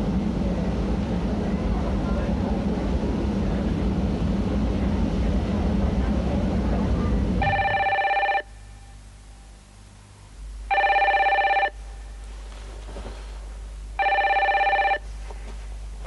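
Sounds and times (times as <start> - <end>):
telephone ringing: 7.4 - 8.5, 10.7 - 11.8, 14.0 - 15.0.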